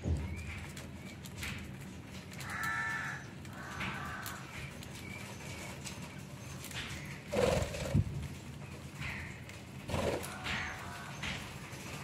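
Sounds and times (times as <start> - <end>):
leaves rustling: 0.0 - 12.0
beaks pecking clicks: 0.3 - 5.3.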